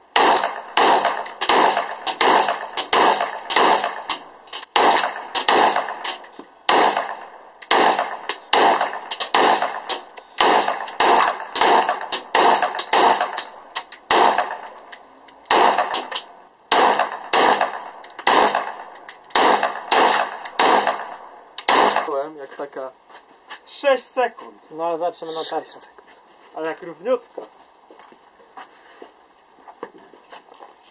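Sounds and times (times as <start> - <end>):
rifle shots with echo: 0.1 - 14.9, 15.5 - 22.1.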